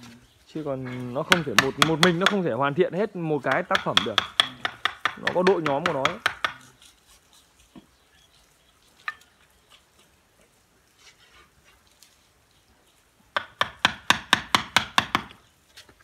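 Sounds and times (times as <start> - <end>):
mallet knocking on chisel: 1.3 - 2.4, 3.5 - 6.6, 13.4 - 15.4.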